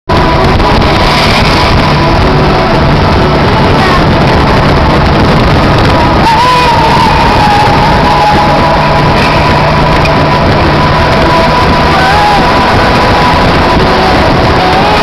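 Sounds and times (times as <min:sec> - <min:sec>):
wind noise on microphone: 0:00.0 - 0:15.0
motorcycle engine: 0:00.1 - 0:15.0.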